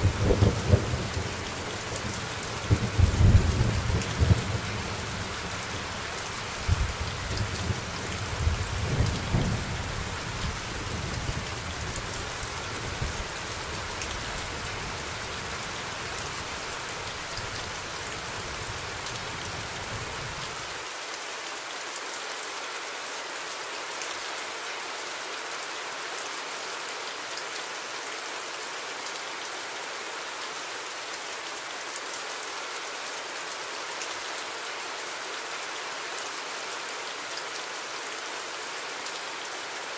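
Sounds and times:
rain hiss: 0:00.0 - 0:39.9.

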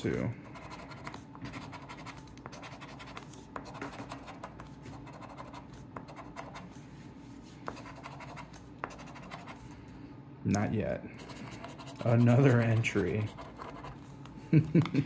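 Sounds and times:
coin scraping scratch card: 0:00.1 - 0:06.7, 0:07.8 - 0:09.6, 0:11.2 - 0:14.1.

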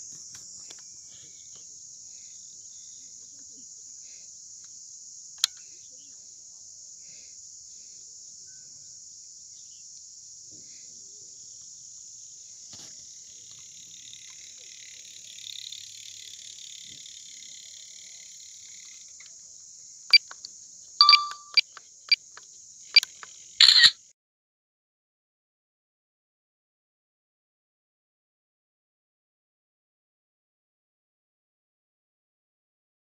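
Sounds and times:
cicadas droning: 0:00.0 - 0:23.9
sharp clicks: 0:20.1 - 0:22.4, 0:23.0 - 0:23.9.

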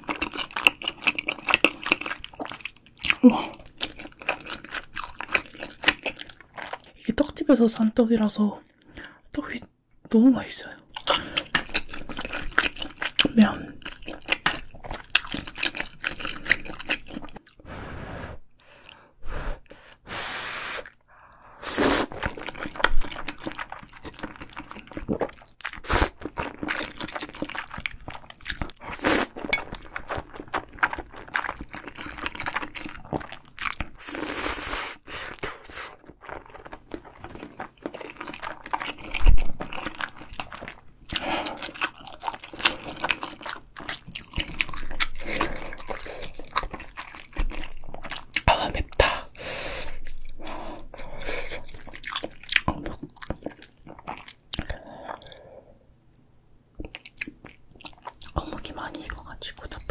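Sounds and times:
noodles being slurped: 0:21.6 - 0:27.6
wet chewing clicks: 0:35.4 - 0:49.3, 0:49.9 - 0:55.4, 0:56.8 - 0:59.9.

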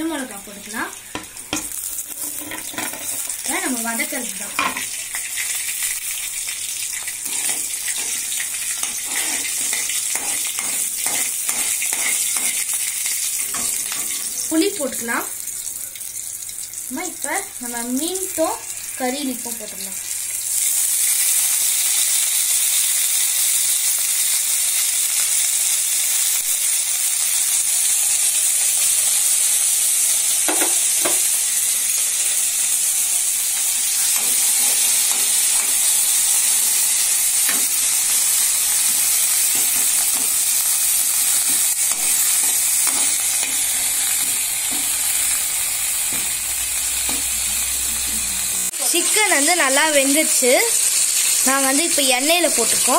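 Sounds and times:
hot oil sizzling: 0:00.0 - 0:52.9
spoon scraping and knocking pan: 0:01.1 - 0:03.3, 0:04.6 - 0:04.9, 0:07.2 - 0:12.7, 0:30.5 - 0:31.3, 0:34.0 - 0:36.0, 0:38.8 - 0:40.4, 0:41.2 - 0:45.3.

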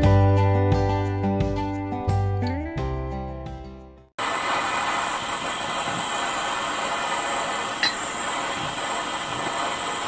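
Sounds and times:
propane torch hissing: 0:04.2 - 0:10.0.

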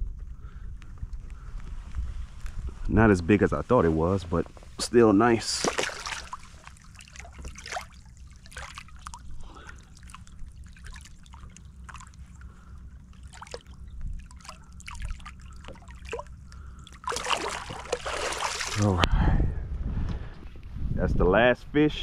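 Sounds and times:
steady low rumble: 0:00.0 - 0:22.0
water trickling and dripping: 0:05.5 - 0:18.8.

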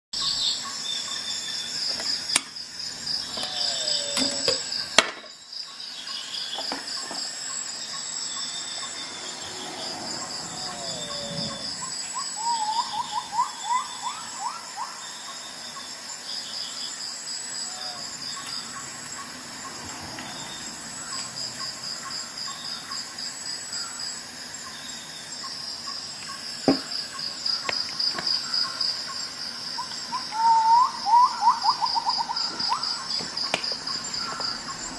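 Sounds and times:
bird chirping: 0:00.2 - 0:05.0, 0:05.6 - 0:15.9
crickets chirping: 0:00.2 - 0:34.9.

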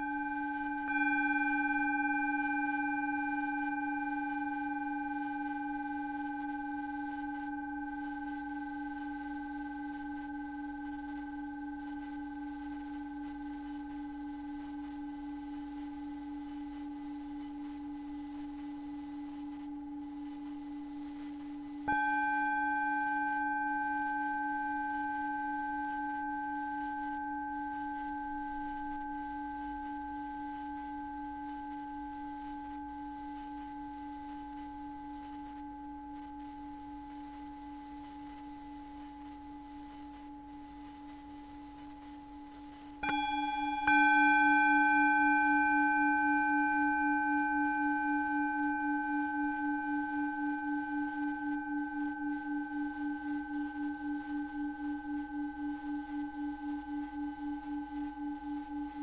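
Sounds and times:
higher ringing tone: 0:00.0 - 0:16.4, 0:43.0 - 0:59.0
steady low tone: 0:00.0 - 0:59.0.

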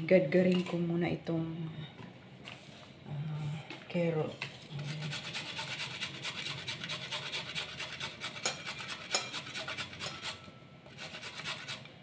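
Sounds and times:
carrot rasping on a grater: 0:04.8 - 0:11.9.

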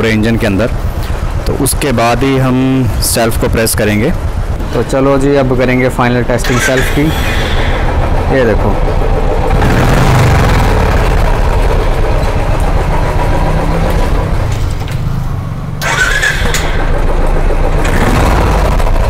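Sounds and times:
motorcycle engine idling: 0:00.0 - 0:19.0
electric starter cranking: 0:06.4 - 0:08.6, 0:15.8 - 0:19.0.

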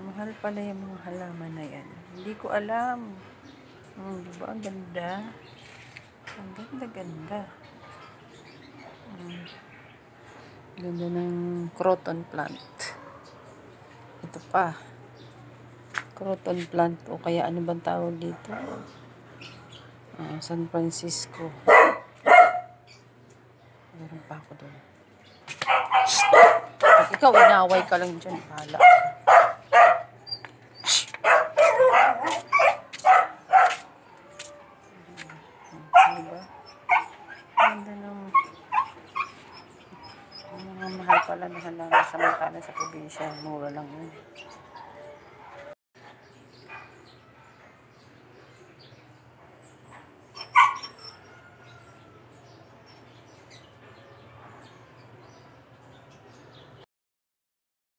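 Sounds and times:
dog barking: 0:21.6 - 0:22.8, 0:25.6 - 0:27.9, 0:28.8 - 0:30.2, 0:31.2 - 0:33.9, 0:35.7 - 0:39.3, 0:41.0 - 0:43.3, 0:50.4 - 0:51.2.

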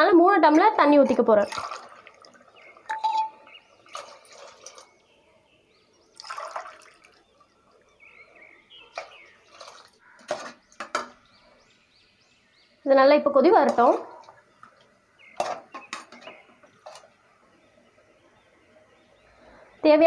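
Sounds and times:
water splashing into gravy: 0:01.3 - 0:03.0, 0:03.8 - 0:04.9, 0:06.1 - 0:07.4, 0:09.0 - 0:10.5
ladle clinking against metal pot: 0:02.9 - 0:03.5.

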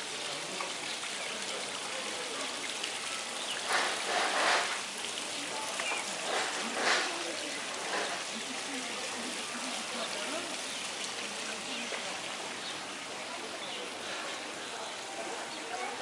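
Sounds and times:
rain on wet street: 0:00.0 - 0:16.0.

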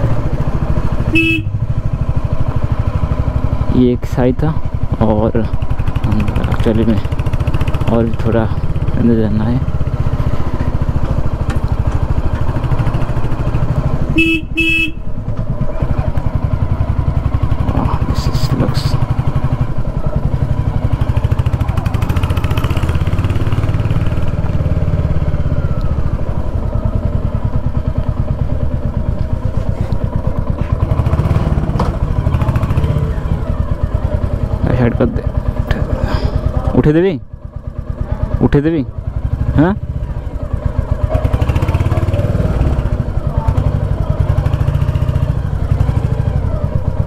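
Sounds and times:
motorcycle engine running: 0:00.0 - 0:47.0
horn beeps: 0:01.1 - 0:01.6, 0:14.1 - 0:15.1.

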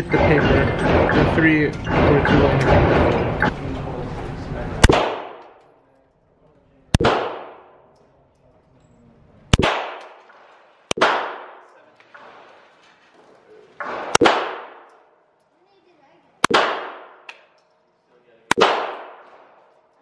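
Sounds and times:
pistol shots indoors: 0:04.8 - 0:05.7, 0:07.0 - 0:08.0, 0:09.5 - 0:12.5, 0:13.8 - 0:15.4, 0:16.4 - 0:17.6, 0:18.5 - 0:19.9.

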